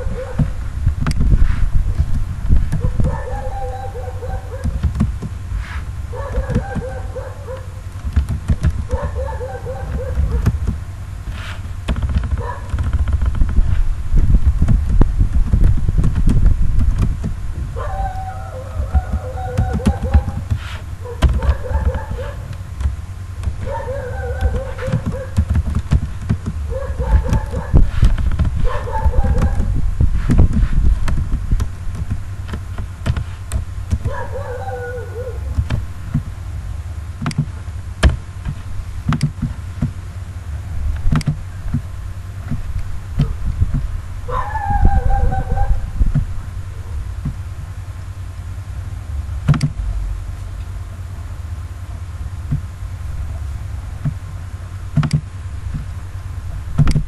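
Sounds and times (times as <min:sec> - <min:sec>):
short pitched bending calls: 0:00.0 - 0:40.8
steady low hum: 0:00.0 - 0:57.0.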